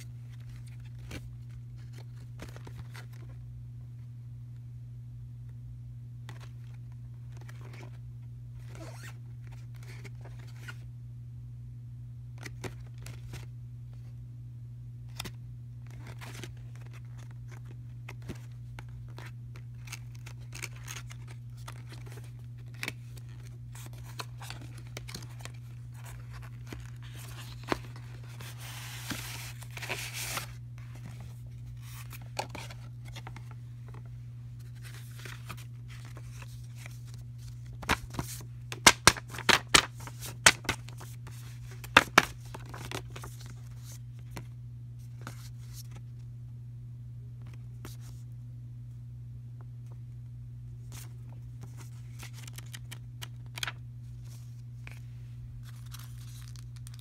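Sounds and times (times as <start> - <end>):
cardboard and paper rustling: 0.0 - 3.4, 6.3 - 8.0, 12.4 - 13.5, 15.1 - 46.2, 50.8 - 57.0
steady low hum: 0.0 - 57.0.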